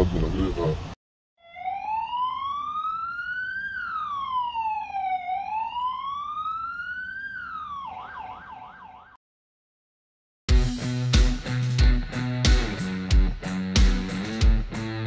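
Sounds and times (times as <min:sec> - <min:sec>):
electronic siren wailing: 0:01.4 - 0:09.2
electric guitar music: 0:10.5 - 0:15.0.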